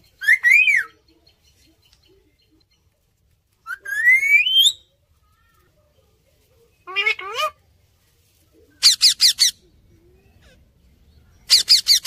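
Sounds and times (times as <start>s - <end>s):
parakeets whistling: 11.5s - 12.0s.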